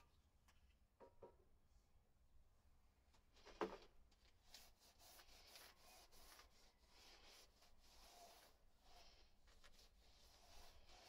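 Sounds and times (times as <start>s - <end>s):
sponge rubbing on tyre: 4.8s - 11.0s.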